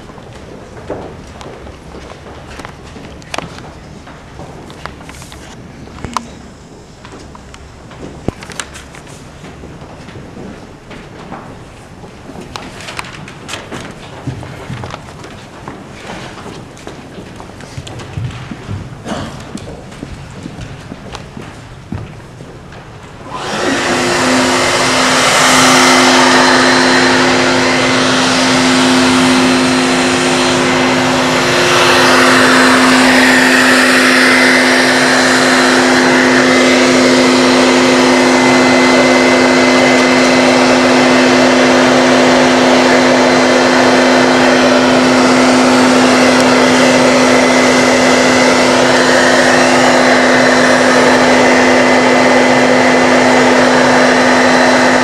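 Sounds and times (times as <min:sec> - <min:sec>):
electric motor blower whine: 0:23.0 - 0:55.0.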